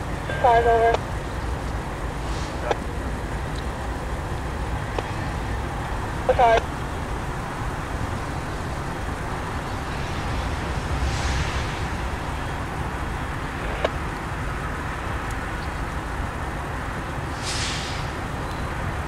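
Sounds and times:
diesel locomotive engine rumble: 0:00.0 - 0:19.0
brief hiss: 0:17.3 - 0:18.2.

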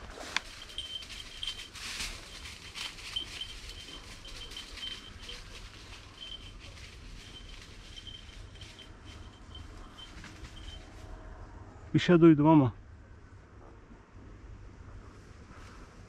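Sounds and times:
footsteps through undergrowth: 0:00.0 - 0:11.0.

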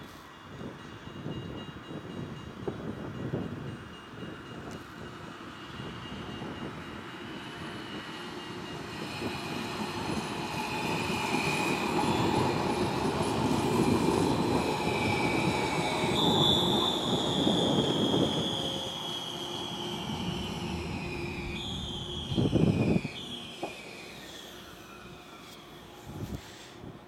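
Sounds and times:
tram wheels rumbling on rails: 0:00.3 - 0:27.0
high electric whine: 0:15.1 - 0:26.3.

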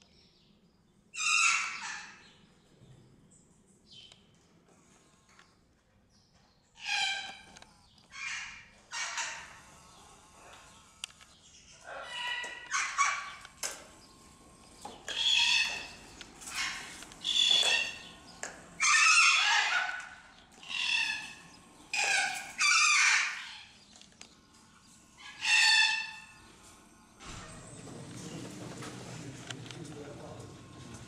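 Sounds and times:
parrots screeching: 0:01.1 - 0:02.2, 0:06.8 - 0:07.5, 0:08.1 - 0:10.8, 0:11.6 - 0:14.2, 0:14.8 - 0:23.8, 0:24.8 - 0:27.4.

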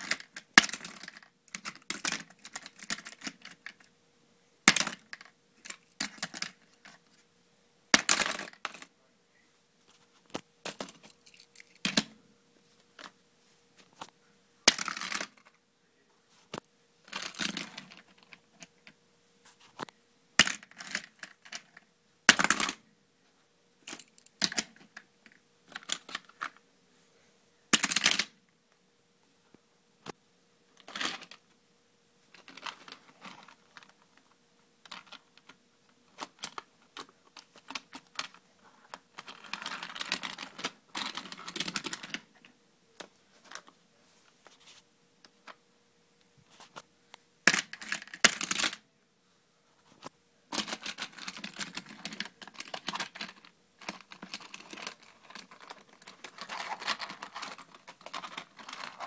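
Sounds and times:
toy car and plastic track rattling: 0:00.0 - 0:03.8, 0:39.1 - 0:42.3, 0:47.5 - 0:48.8, 0:50.6 - 0:59.0.

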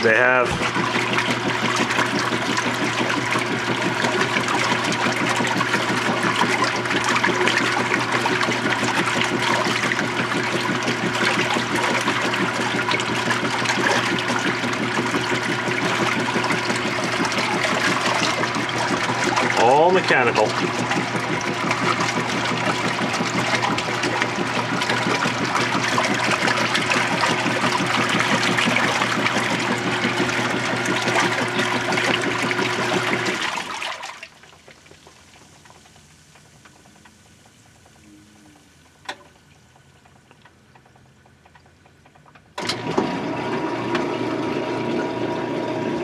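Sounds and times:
washing machine churning water: 0:00.0 - 0:46.0
washing machine pump draining: 0:00.0 - 0:46.0.

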